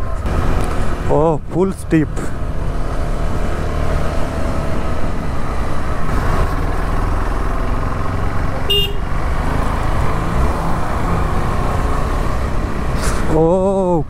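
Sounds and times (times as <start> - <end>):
short horn beep: 8.7 - 9.0.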